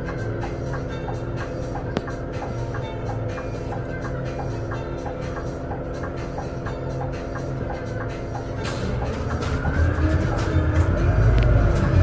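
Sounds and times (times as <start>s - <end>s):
bus engine idling: 0.0s - 12.0s.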